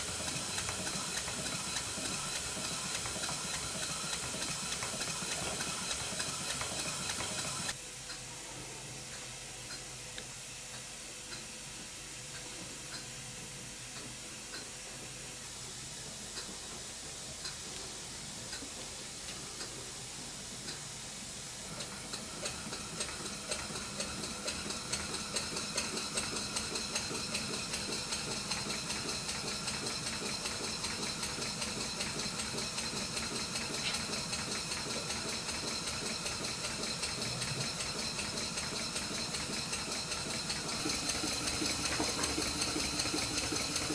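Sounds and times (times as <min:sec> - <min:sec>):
hiss of exhausting air: 0:00.0 - 0:07.8
model steam engine exhaust beating: 0:00.0 - 0:07.8, 0:20.6 - 0:43.9.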